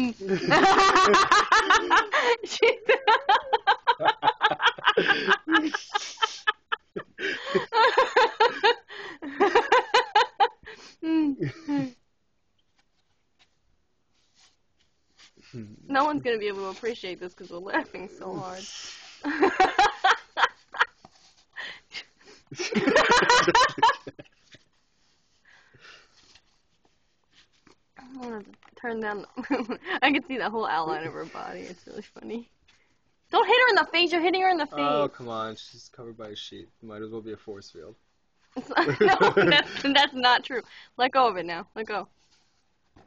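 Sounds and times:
people laughing hard: 0.3s - 10.6s, 19.2s - 20.6s, 22.6s - 24.2s, 38.6s - 40.0s.

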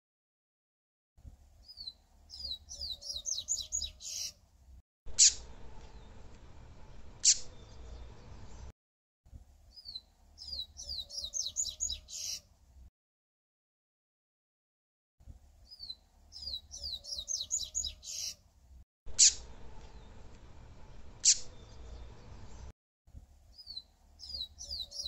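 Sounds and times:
bird song whistled notes: 1.6s - 4.4s, 9.7s - 12.4s, 15.7s - 18.4s, 23.5s - 25.0s.

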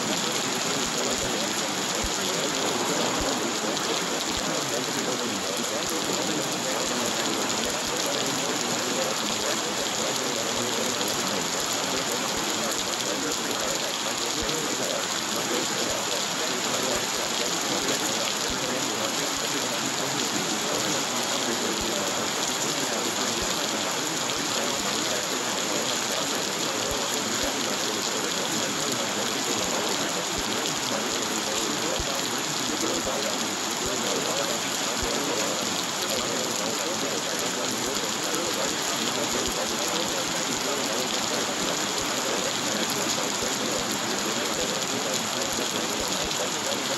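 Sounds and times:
rain falling: 0.0s - 46.9s.

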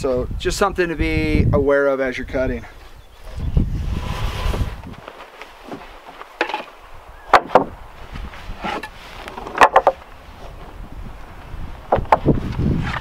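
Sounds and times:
wooden boards knocking together: 5.7s - 7.8s, 8.6s - 10.0s, 11.9s - 12.4s.

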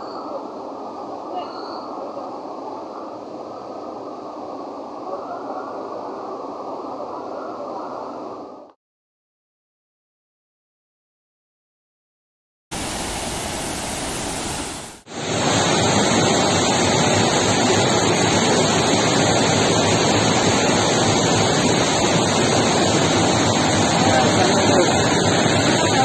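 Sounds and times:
rushing floodwater: 12.8s - 26.0s.

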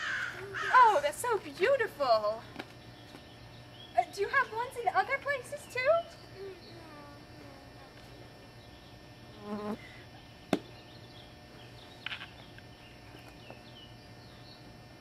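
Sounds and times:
insect buzzing: 0.0s - 15.0s.

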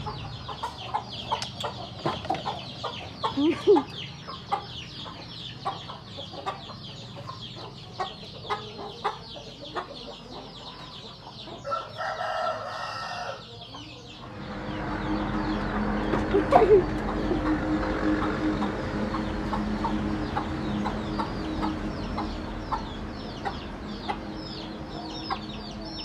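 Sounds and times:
chickens chirping and clucking: 0.0s - 26.0s
rooster crowing: 11.6s - 13.5s
low hum with rushing noise: 14.1s - 26.0s.

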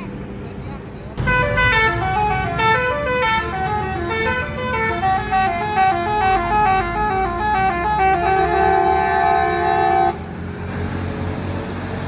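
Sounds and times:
musical air horn tune: 1.3s - 10.2s.

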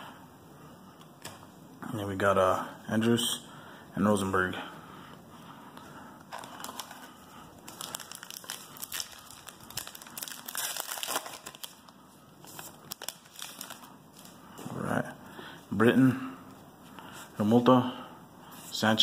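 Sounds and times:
wrapper crinkling and tearing: 6.3s - 14.4s.

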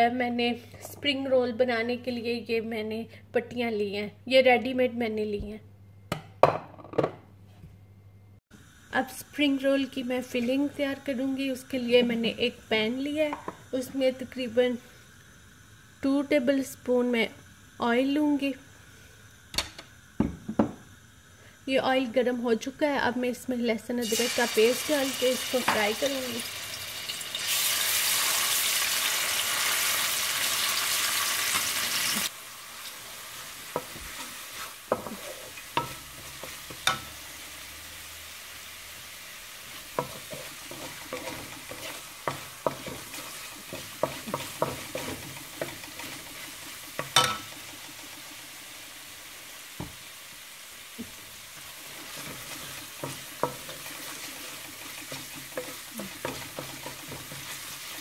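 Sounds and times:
paste sizzling in hot oil: 8.6s - 58.0s
spatula stirring in wok: 32.7s - 37.7s, 39.5s - 48.7s, 51.0s - 58.0s.

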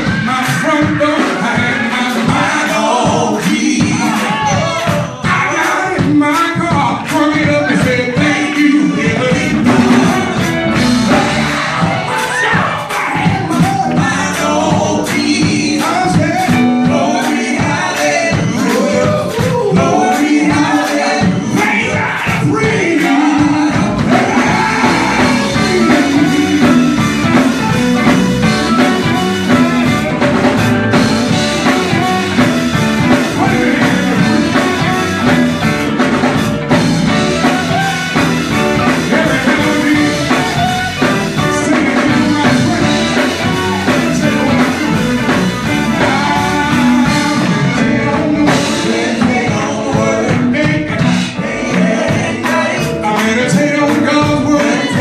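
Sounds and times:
man singing into a microphone: 0.0s - 10.5s, 12.5s - 27.4s, 33.2s - 35.0s, 38.8s - 55.0s
gospel band playing: 0.0s - 55.0s.

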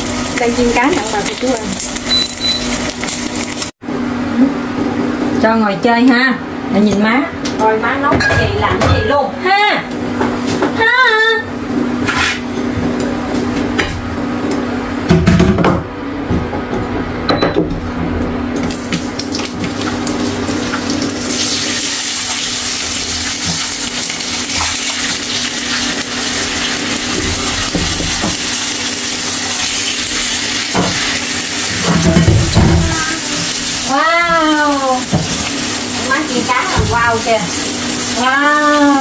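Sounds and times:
water running from a tap: 0.0s - 3.8s, 18.6s - 39.0s
kitchen clatter: 6.8s - 9.2s, 12.0s - 12.6s, 18.6s - 39.0s.

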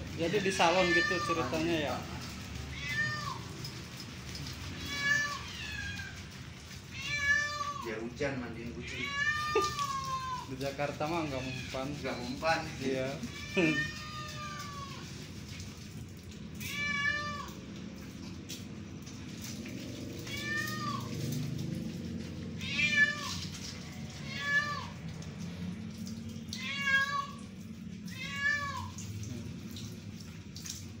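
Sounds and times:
kitten meowing: 0.5s - 1.6s, 2.7s - 3.4s, 6.9s - 7.9s, 8.8s - 10.5s, 11.3s - 12.4s, 16.6s - 17.6s, 20.2s - 21.1s, 22.6s - 23.4s, 24.3s - 25.0s, 26.5s - 27.4s, 28.1s - 29.0s.

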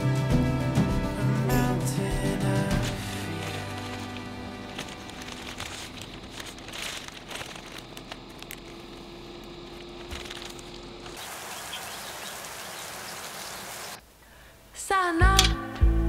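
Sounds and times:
plastic bag crinkling: 2.9s - 11.3s.

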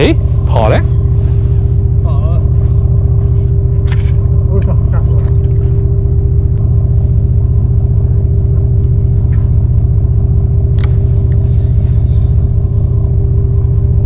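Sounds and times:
boat engine rumbling: 0.0s - 14.0s.

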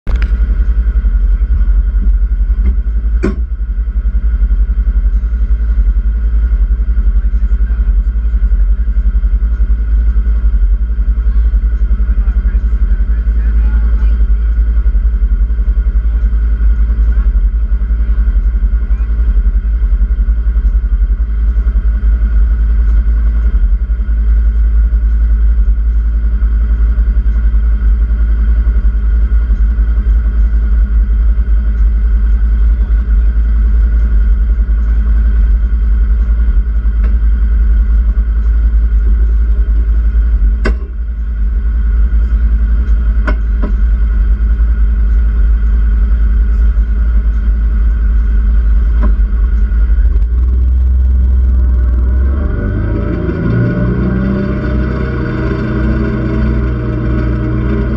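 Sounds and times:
vehicle engine drone: 0.0s - 57.9s
sharp knocks: 2.6s - 3.5s.

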